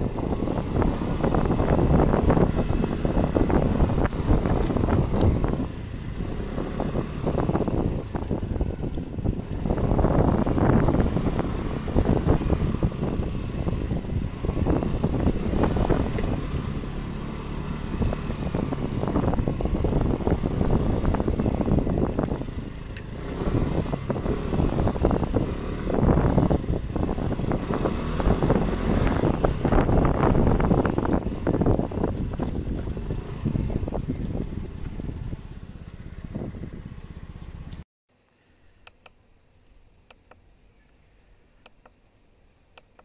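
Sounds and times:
scooter engine running: 0:00.0 - 0:37.8
wind buffeting microphone: 0:00.0 - 0:37.8.

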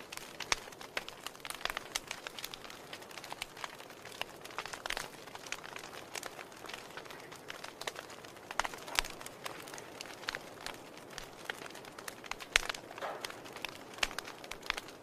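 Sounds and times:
fire crackling and popping: 0:00.0 - 0:15.0
soft steady hiss: 0:00.0 - 0:15.0.

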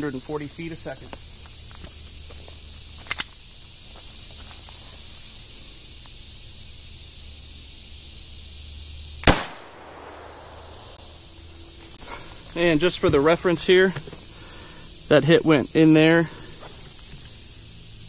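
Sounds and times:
pistol shot: 0:09.2 - 0:10.9.

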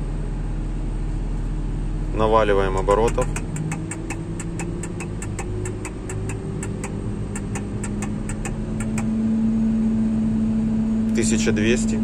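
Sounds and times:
regular ticking: 0:02.8 - 0:09.1
harvester engine revving up: 0:02.8 - 0:09.2.

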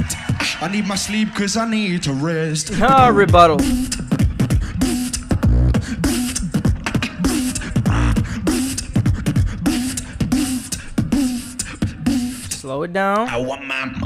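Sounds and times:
person beatboxing: 0:02.7 - 0:13.3.

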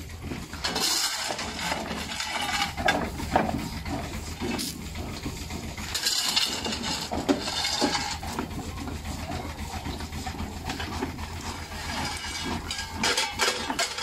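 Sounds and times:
stone crusher rumbling: 0:00.0 - 0:14.0
shovel scraping rubble: 0:00.5 - 0:04.8, 0:05.8 - 0:08.6, 0:10.7 - 0:14.0.

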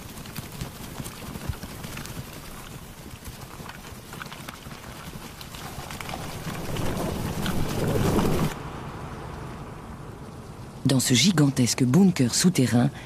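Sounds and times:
crackling rustle of ants: 0:00.0 - 0:08.6.

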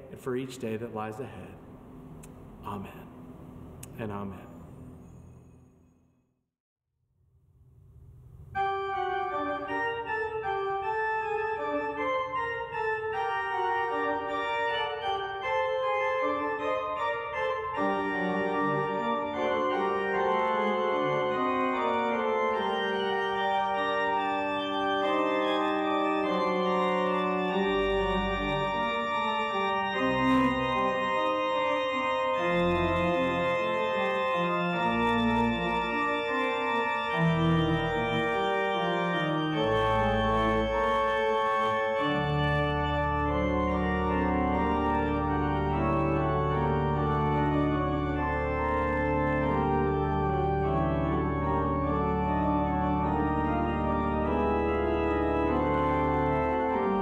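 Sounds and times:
deep organ bass notes: 0:00.0 - 0:05.6, 0:08.4 - 0:57.0
church organ chords: 0:00.0 - 0:05.9, 0:08.4 - 0:57.0.

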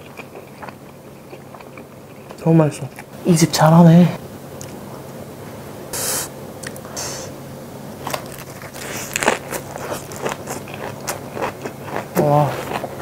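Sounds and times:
wet crunching chewing: 0:00.0 - 0:03.1, 0:08.0 - 0:13.0.

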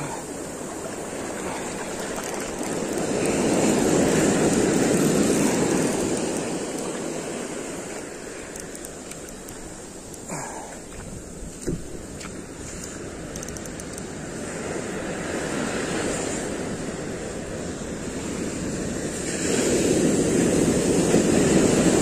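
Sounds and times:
ocean surf breaking: 0:00.0 - 0:22.0.

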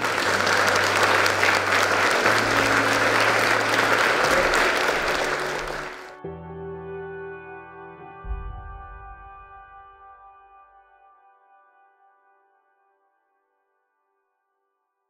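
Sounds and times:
audience applauding: 0:00.0 - 0:06.2
background music: 0:00.0 - 0:12.7.

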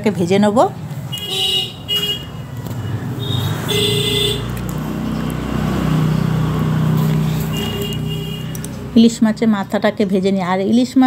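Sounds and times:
vehicle horn toots: 0:01.1 - 0:02.4, 0:03.2 - 0:04.5, 0:07.5 - 0:08.6.

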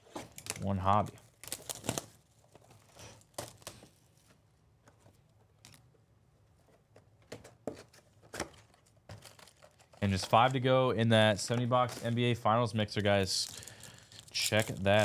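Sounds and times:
plastic wrap crinkling and tearing: 0:00.3 - 0:04.0, 0:09.2 - 0:10.6, 0:13.1 - 0:15.0.

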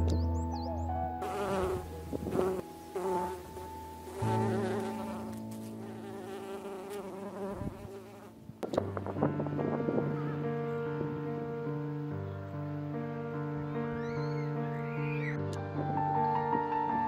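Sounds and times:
bees buzzing: 0:01.2 - 0:08.4.

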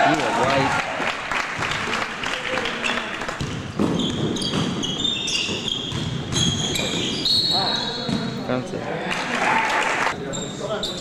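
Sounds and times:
sneakers squeaking: 0:02.6 - 0:08.5, 0:10.2 - 0:11.0
basketball bouncing: 0:03.4 - 0:07.0.

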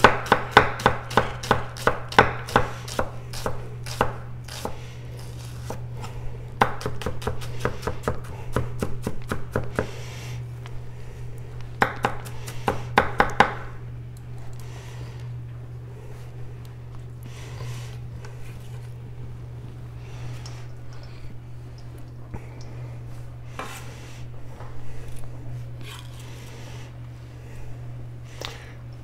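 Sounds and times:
knife dicing onion on board: 0:00.0 - 0:04.8, 0:06.6 - 0:10.0, 0:11.8 - 0:13.6.

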